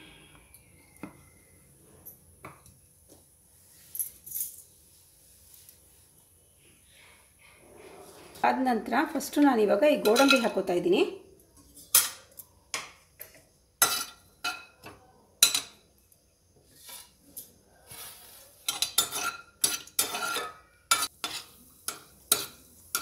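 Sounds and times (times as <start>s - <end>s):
metal spoon clinking on a pan: 10.0s - 10.6s, 11.8s - 15.8s, 18.6s - 23.0s.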